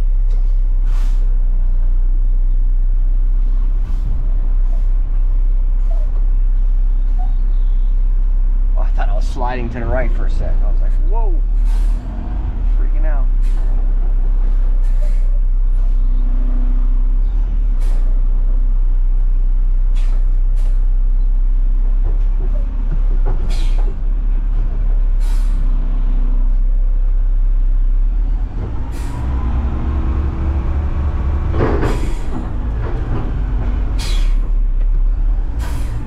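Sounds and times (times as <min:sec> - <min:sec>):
diesel truck engine running: 0:00.0 - 0:36.0
short air hisses: 0:00.8 - 0:01.4, 0:11.6 - 0:12.0, 0:20.0 - 0:20.8, 0:25.2 - 0:25.6.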